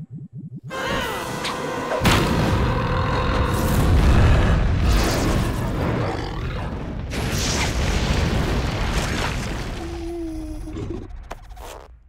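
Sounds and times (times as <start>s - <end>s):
cartoon volcanic eruption boom: 3.6s - 10.7s.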